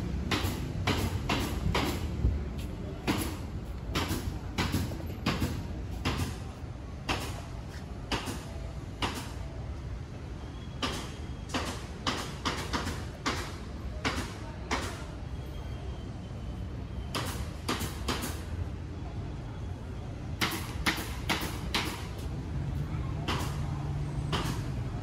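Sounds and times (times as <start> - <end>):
city street rumble: 0.0 - 25.0
footsteps on pavement: 1.5 - 6.6, 7.6 - 8.3.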